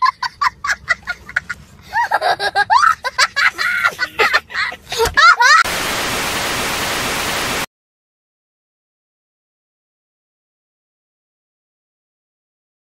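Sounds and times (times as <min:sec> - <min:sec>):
young child laughing and squealing: 0:00.6 - 0:05.7
tv static hiss: 0:05.7 - 0:07.7.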